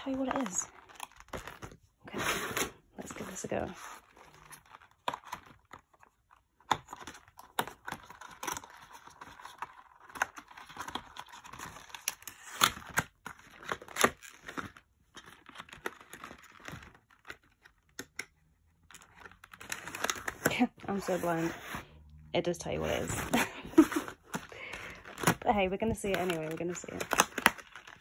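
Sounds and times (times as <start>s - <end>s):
cardboard box being opened: 19.6s - 21.9s.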